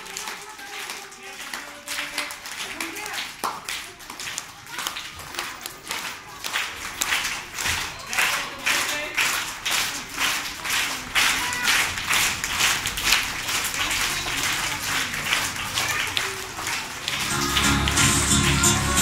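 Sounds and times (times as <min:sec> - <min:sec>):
children clapping in rhythm: 0:00.0 - 0:19.0.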